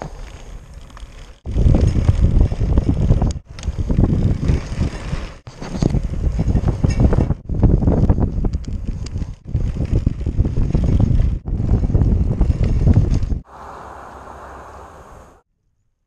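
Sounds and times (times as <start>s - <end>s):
wind buffeting microphone: 1.4s - 15.4s
road rumble: 9.4s - 15.4s.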